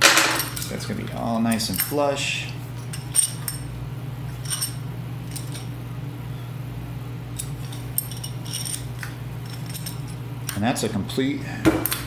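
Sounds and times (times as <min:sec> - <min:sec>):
low hum: 0:00.0 - 0:10.6
light metallic clinks: 0:07.3 - 0:10.6.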